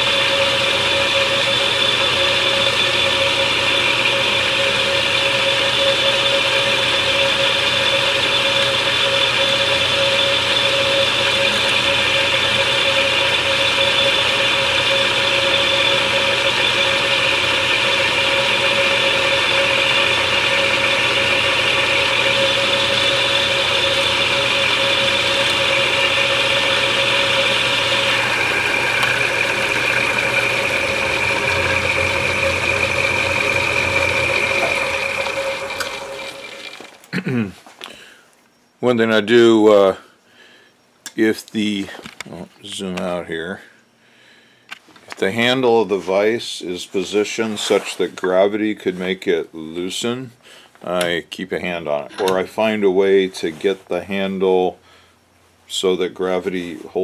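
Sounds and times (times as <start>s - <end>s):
milling machine whine: 0.0s - 43.7s, 50.9s - 57.0s.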